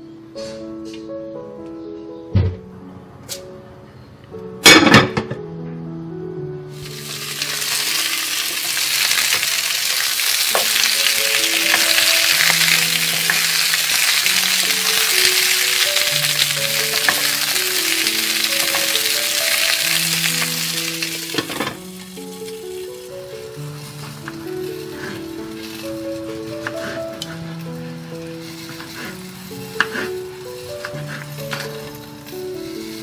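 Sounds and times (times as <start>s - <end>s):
peppers sizzling in hot oil: 6.7s - 33.0s
wooden spoon stirring: 7.0s - 21.6s, 23.3s - 33.0s.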